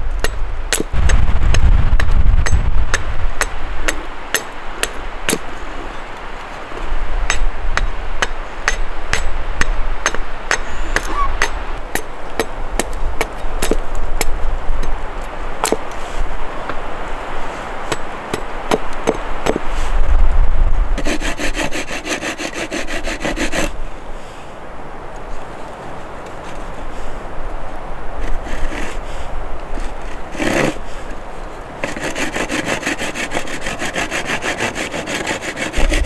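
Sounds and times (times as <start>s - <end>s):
low rumble: 0.9s - 3.8s
hand tool strikes: 7.3s - 14.3s.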